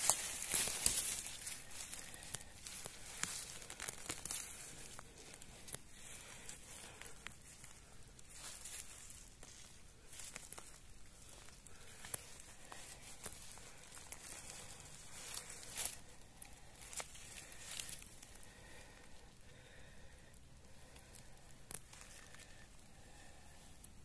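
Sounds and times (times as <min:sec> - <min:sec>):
twigs snapping: 0:00.0 - 0:18.8
rustling of dry leaves and twigs: 0:00.0 - 0:24.0.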